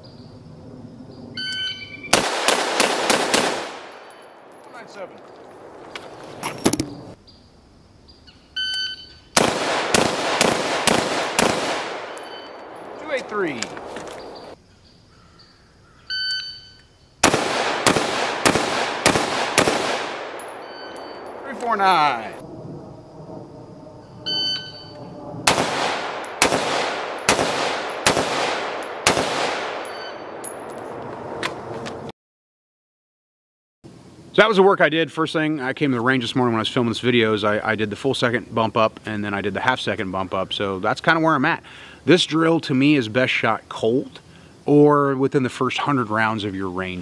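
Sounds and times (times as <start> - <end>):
rifle shots: 2.1 - 5.9, 9.4 - 14.6, 17.2 - 22.4, 25.4 - 31.4.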